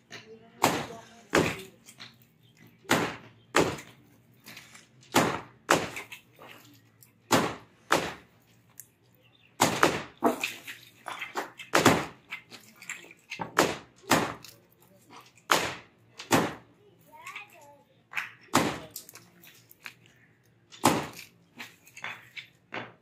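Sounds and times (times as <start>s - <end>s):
hammers striking concrete: 0.0s - 4.0s, 4.6s - 6.2s, 7.2s - 8.3s, 9.6s - 16.7s, 18.1s - 19.2s, 20.7s - 23.0s.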